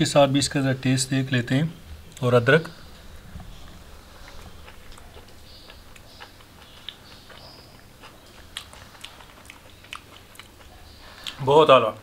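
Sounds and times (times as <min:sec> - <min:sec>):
low steady hum: 0:00.0 - 0:12.0
person chewing food: 0:02.8 - 0:11.5.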